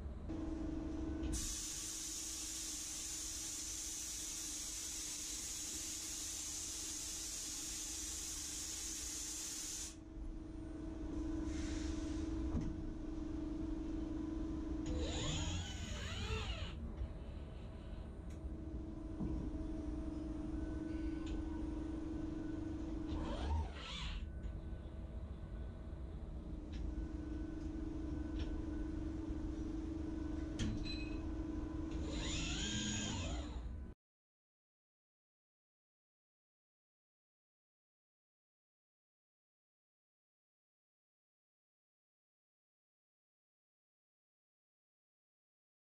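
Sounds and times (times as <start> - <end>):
machine hum: 0.0 - 4.2
machine hum and low rumble: 0.0 - 8.2, 10.0 - 34.0
chip-blasting hiss: 1.4 - 10.0
servo motors whining: 14.9 - 16.8, 32.0 - 33.6
motor whine rising and falling: 32.0 - 33.6.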